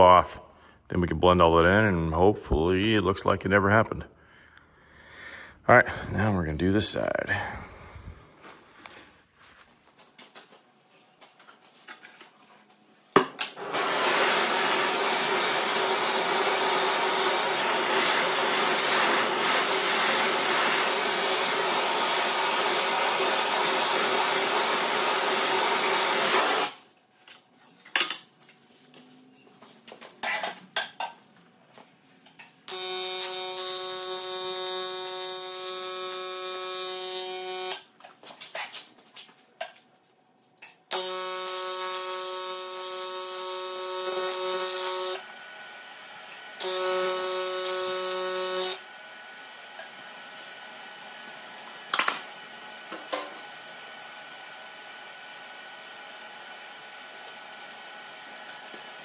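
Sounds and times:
welding arc buzzing: 0:13.4 - 0:26.8, 0:32.6 - 0:37.9, 0:40.9 - 0:45.3, 0:46.6 - 0:48.9.

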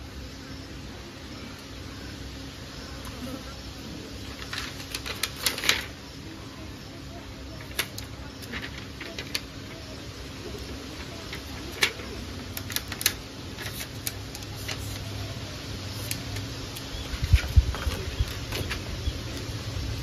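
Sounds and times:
plastic film crinkling: 0:04.2 - 0:06.0.

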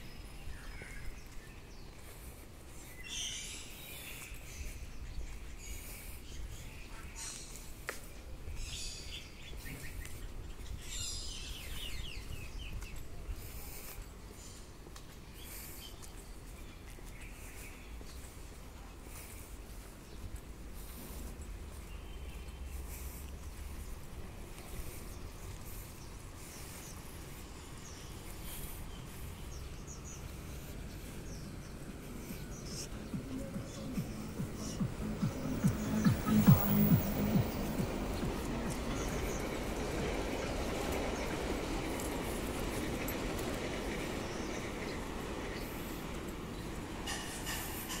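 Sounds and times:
songbirds chirping: 0:00.0 - 0:48.0
low outdoor rumble: 0:17.8 - 0:45.7.

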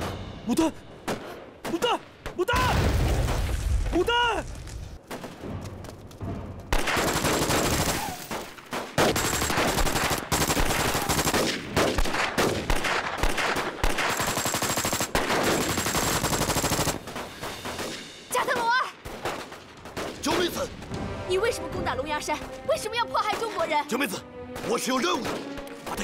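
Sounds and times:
rapid automatic gunfire: 0:06.7 - 0:20.2.

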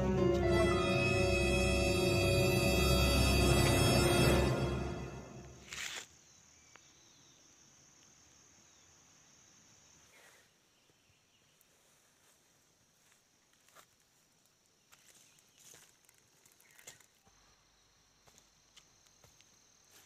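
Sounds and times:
music: 0:00.0 - 0:05.6
insect drone: 0:00.0 - 0:20.0.

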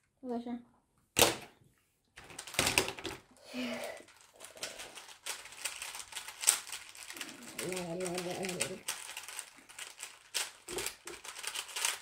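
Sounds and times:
plastic puzzle cube clicking: 0:07.5 - 0:12.0.

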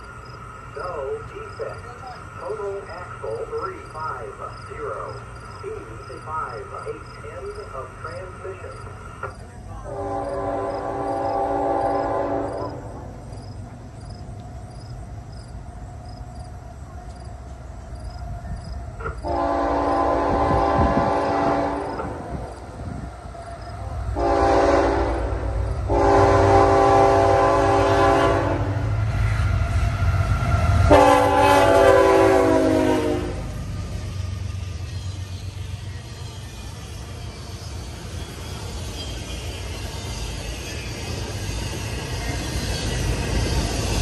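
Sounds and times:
low rumble of train: 0:00.0 - 0:44.0
locomotive air horn blasts: 0:09.9 - 0:12.9, 0:19.2 - 0:22.2, 0:24.2 - 0:28.9, 0:30.8 - 0:33.5.

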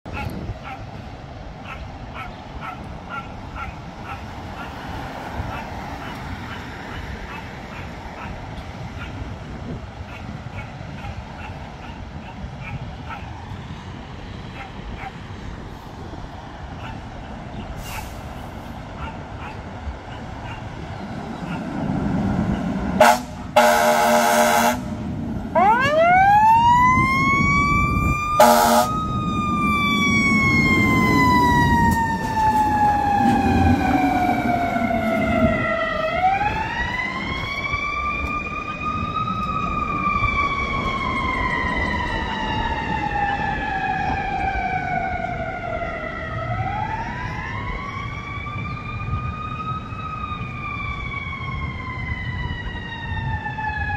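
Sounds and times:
truck horn blast: 0:23.0 - 0:25.0, 0:28.4 - 0:29.0
siren winding up and down: 0:25.5 - 0:53.9.

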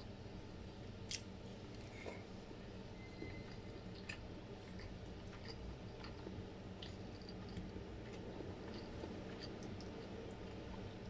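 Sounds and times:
steady low hum: 0:00.0 - 0:11.0
wet chewing and mouth clicks: 0:03.2 - 0:11.0.

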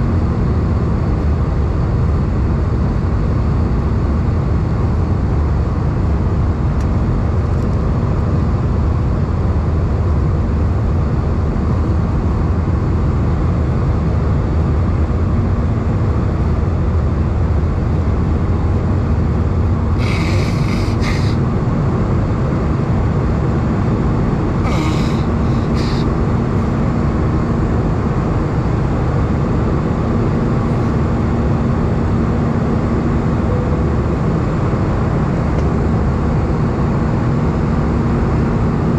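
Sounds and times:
airplane cabin rumble: 0:00.0 - 0:38.9
faint steady hum: 0:00.0 - 0:38.9
brief hissing: 0:20.0 - 0:21.4, 0:24.6 - 0:26.1.

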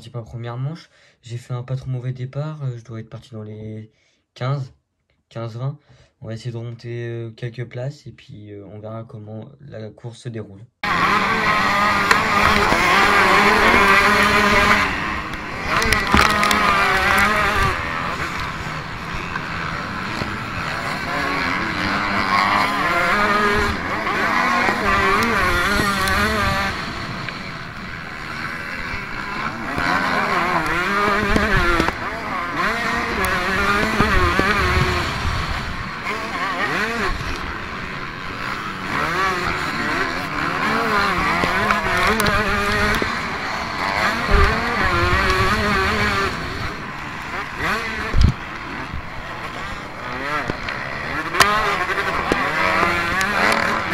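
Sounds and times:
motocross bike engine revving: 0:10.8 - 0:53.9
wind rumble on microphone: 0:32.6 - 0:36.2, 0:44.0 - 0:46.9, 0:47.6 - 0:49.7.

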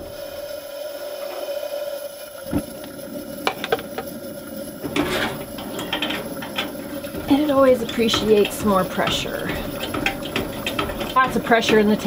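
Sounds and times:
camp stove burner flaring: 0:00.0 - 0:12.0
sharp clicks and knocks: 0:02.5 - 0:04.1, 0:04.8 - 0:12.0.

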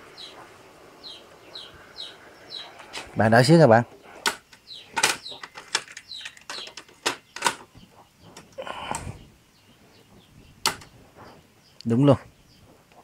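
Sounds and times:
birds chirping: 0:00.0 - 0:13.0
audio equipment clicks and knocks: 0:04.2 - 0:08.5, 0:10.6 - 0:10.9.

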